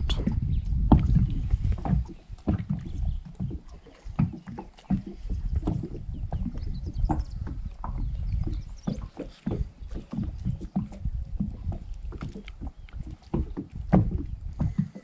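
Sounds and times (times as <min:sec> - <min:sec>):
low steady rumble: 0:00.0 - 0:03.6.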